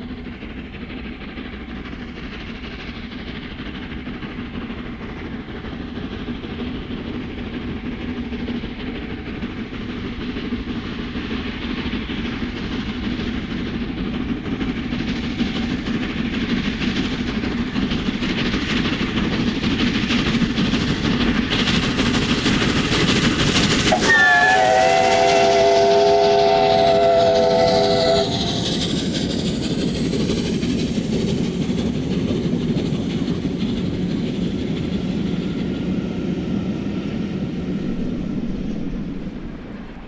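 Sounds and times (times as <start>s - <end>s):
steam locomotive exhaust: 0.0s - 40.0s
train wheels and coaches rumbling: 0.0s - 40.0s
steam train chime whistle: 23.9s - 28.6s.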